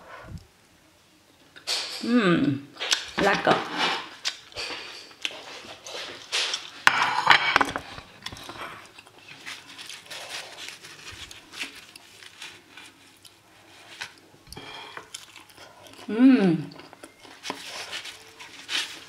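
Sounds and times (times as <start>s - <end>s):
plate knocking on stone counter: 6.9s - 7.8s
hands tearing flatbread: 8.8s - 15.5s, 17.3s - 19.0s.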